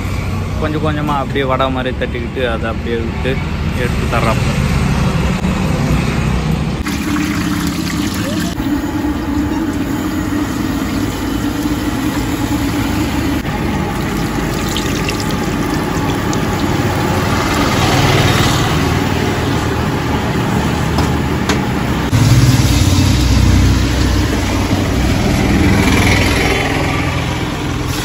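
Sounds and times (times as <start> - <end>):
road traffic rumble: 0.0 - 28.0
food deep-frying in oil: 6.8 - 17.8.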